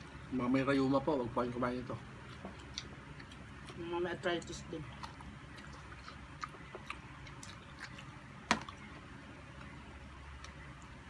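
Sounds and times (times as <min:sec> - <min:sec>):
wet chewing and mouth smacks: 0:02.2 - 0:11.0.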